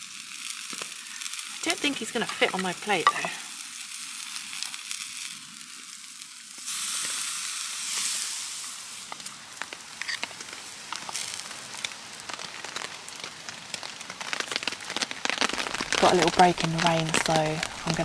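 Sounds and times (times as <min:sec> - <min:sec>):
steak sizzling on a grill: 0:00.0 - 0:18.0
sharp clicks and pops: 0:01.6 - 0:03.4.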